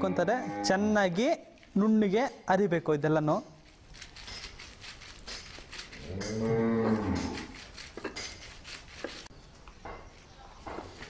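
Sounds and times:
stone roller grinding herbs: 3.7 - 9.3
cow mooing: 6.0 - 7.4.

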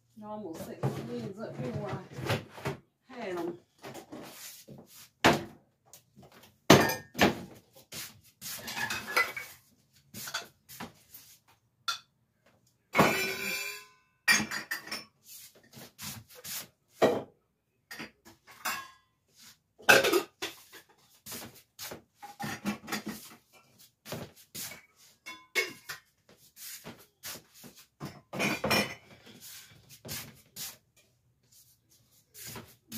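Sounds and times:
dishes and lids clinking: 8.6 - 9.6, 12.9 - 15.2, 17.9 - 19.1, 19.8 - 21.0, 22.2 - 23.8, 24.6 - 26.1, 28.0 - 29.3.

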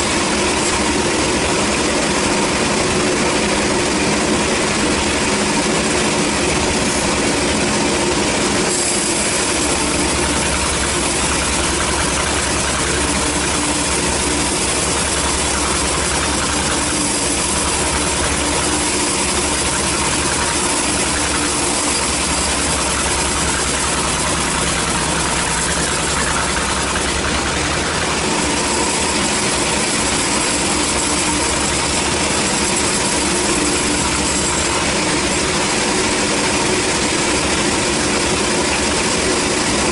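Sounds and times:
band saw cutting log: 0.0 - 39.9.

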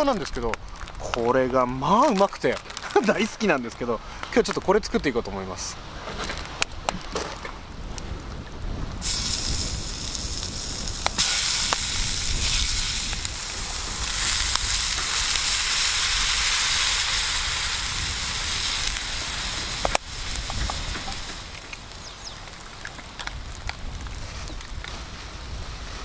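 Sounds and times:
food sizzling in frying pan: 9.0 - 22.8.

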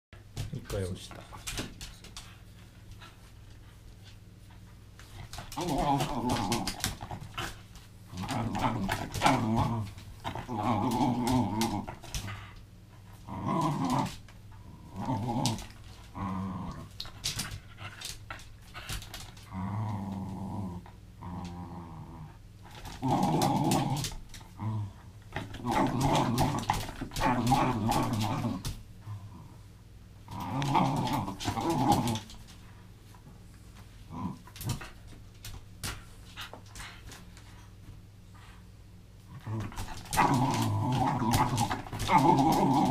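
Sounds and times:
dog growling: 5.1 - 12.6, 13.2 - 18.0, 19.3 - 29.6, 30.3 - 32.4, 34.1 - 35.0, 39.3 - 42.9.

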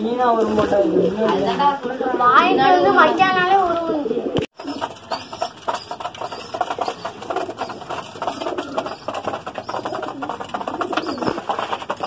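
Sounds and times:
pigeons cooing: 0.7 - 12.0
pigeons scratching and rustling: 4.5 - 12.0.

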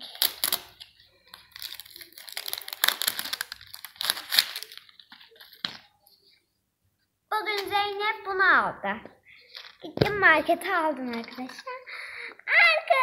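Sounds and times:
plastic wrapping crinkling and tearing: 0.0 - 5.6.

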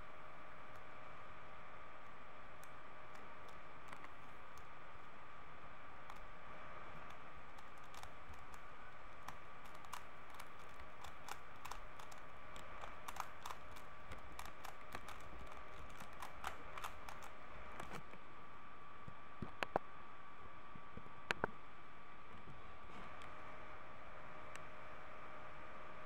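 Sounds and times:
puzzle cube plastic clicks: 7.0 - 18.0.

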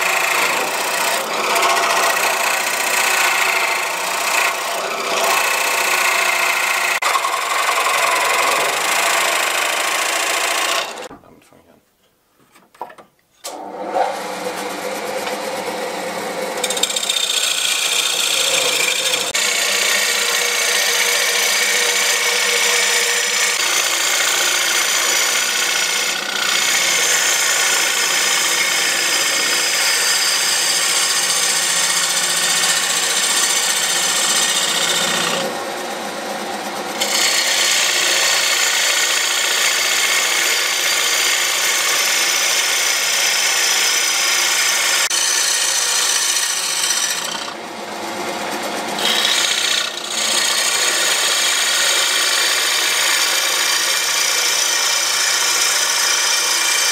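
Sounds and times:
lathe humming: 0.0 - 11.1, 13.5 - 56.9.

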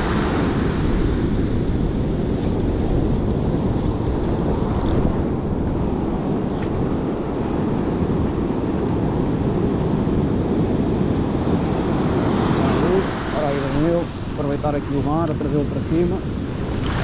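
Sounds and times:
wind buffeting microphone: 0.0 - 17.0
surf breaking on beach: 11.0 - 17.0.

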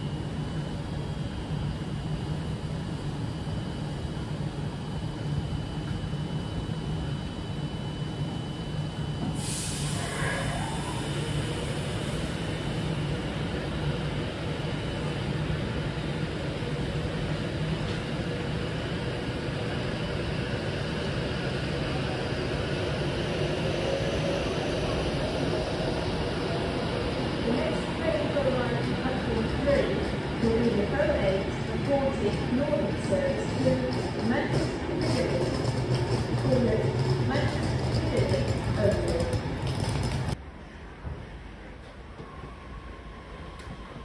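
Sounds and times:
train wheels rumbling on rail: 8.9 - 40.4.

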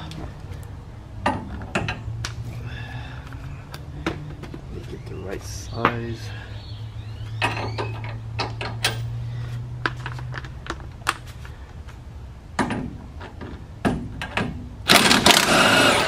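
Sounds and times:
power tool running: 14.9 - 16.0.

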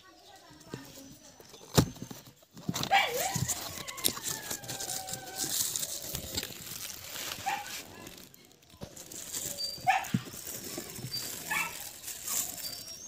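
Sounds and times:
plastic wrap and cardboard rustling: 0.6 - 13.0
animal calls: 9.1 - 13.0.

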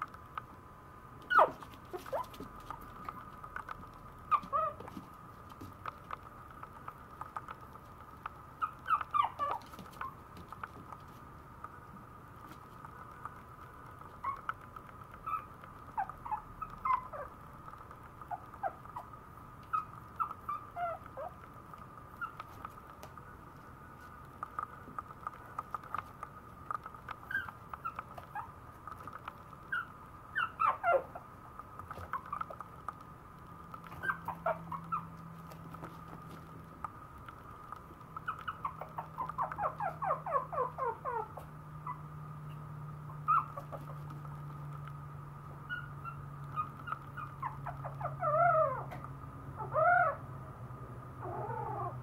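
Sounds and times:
claws clicking on floor: 1.2 - 40.1
puppy whimpering: 1.3 - 2.8, 4.3 - 5.0, 8.6 - 10.2, 14.2 - 14.5, 15.2 - 17.3, 18.3 - 21.4, 22.2 - 22.6, 27.2 - 28.5, 29.7 - 31.2, 33.8 - 35.9, 38.2 - 44.2, 45.6 - 49.0, 49.6 - 50.2, 51.2 - 52.0.

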